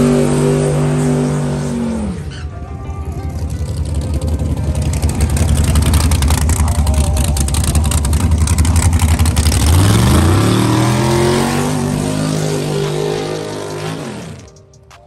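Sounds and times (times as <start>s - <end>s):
car engine revving: 0.0s - 2.5s, 3.3s - 14.6s
tire spinning: 3.4s - 14.6s.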